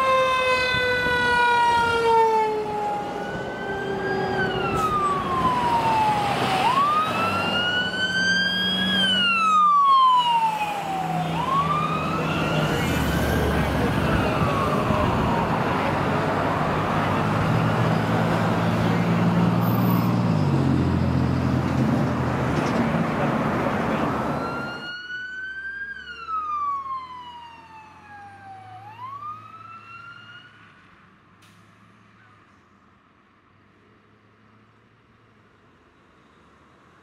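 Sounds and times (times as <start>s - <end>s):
fire truck siren wailing: 0.0s - 20.2s, 22.6s - 30.7s
heavy diesel engines: 0.0s - 24.9s
road noise: 0.0s - 37.0s.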